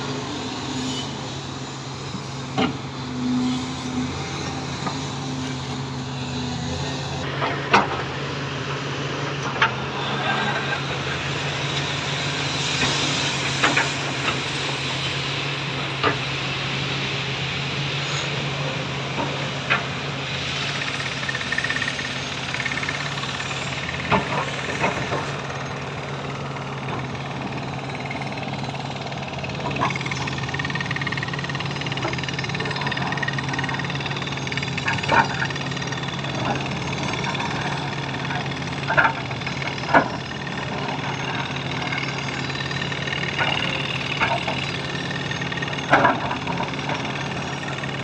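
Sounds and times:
diesel machinery humming: 0:00.0 - 0:48.0.

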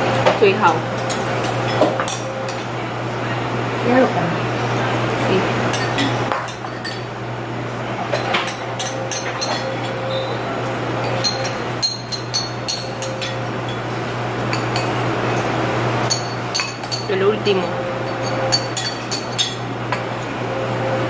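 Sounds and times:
steady background hum: 0:00.0 - 0:21.0
metal utensils clinking on ceramic bowl: 0:08.1 - 0:10.0, 0:11.0 - 0:13.8, 0:16.1 - 0:19.6.

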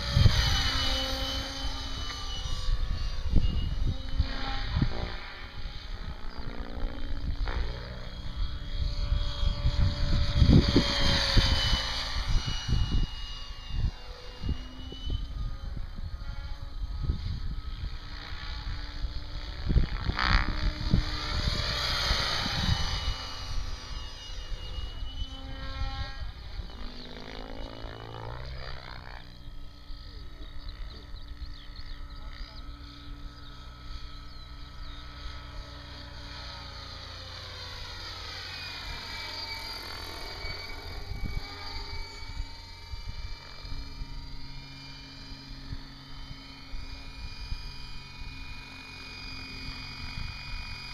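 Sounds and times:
wind rumbling on microphone: 0:00.0 - 0:29.3, 0:40.4 - 0:44.4
model helicopter rotor whine: 0:00.0 - 0:50.9.

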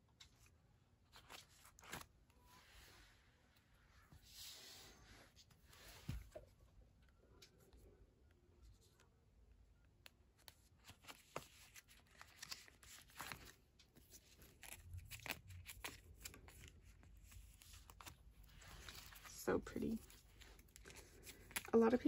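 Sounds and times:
plastic rustling: 0:10.8 - 0:22.0.

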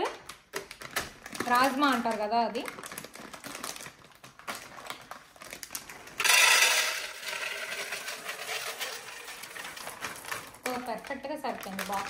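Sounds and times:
plastic bag crinkling: 0:00.0 - 0:12.0
dried beans pouring into glass: 0:06.2 - 0:10.8.

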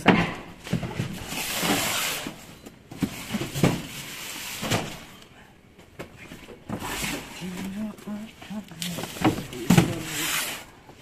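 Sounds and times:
boxes knocking down: 0:00.0 - 0:05.2, 0:08.9 - 0:10.6
cardboard sliding and scraping: 0:00.7 - 0:05.0, 0:06.7 - 0:07.8, 0:08.8 - 0:10.7.

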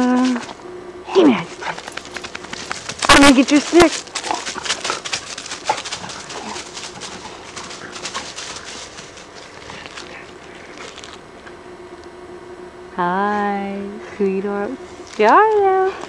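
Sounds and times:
footsteps crunching through dry leaves: 0:01.5 - 0:11.2.

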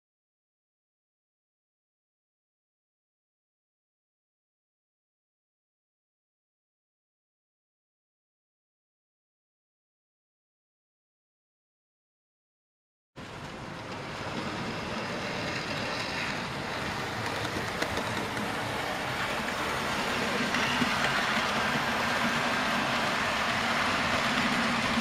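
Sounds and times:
train rumbling on track: 0:13.2 - 0:25.0.

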